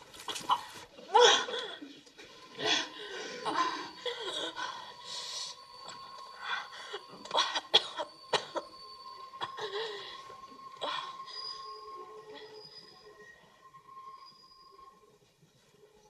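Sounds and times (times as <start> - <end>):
woman coughing and gasping: 7.3 - 8.7.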